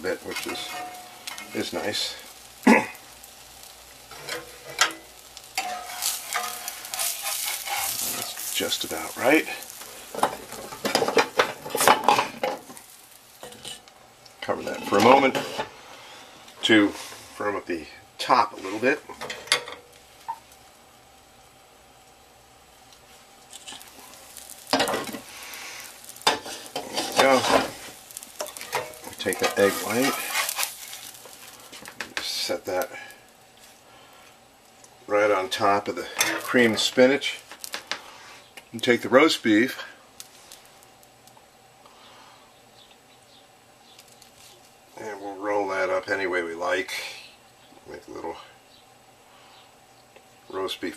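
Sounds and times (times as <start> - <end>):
egg sizzling in hot oil: 0.0 - 17.4, 18.1 - 45.0
metal spatula scraping skillet: 0.1 - 2.4, 3.6 - 13.9, 14.6 - 17.2, 23.5 - 32.0.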